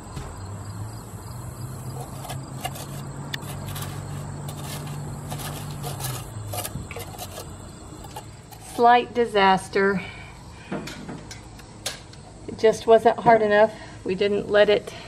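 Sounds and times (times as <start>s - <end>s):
engine humming: 0.0s - 9.2s.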